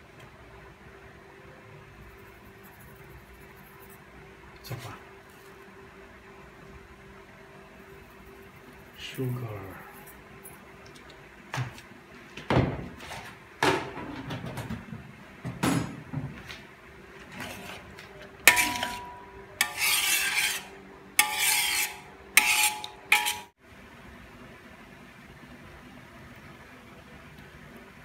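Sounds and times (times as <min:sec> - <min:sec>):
spoon scraping metal wok: 0:17.2 - 0:23.6
spoon knocking metal wok: 0:18.5 - 0:23.5.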